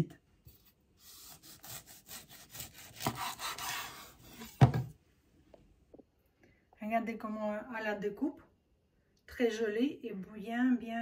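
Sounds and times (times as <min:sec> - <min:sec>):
knife sawing through sausage: 0:01.0 - 0:04.5.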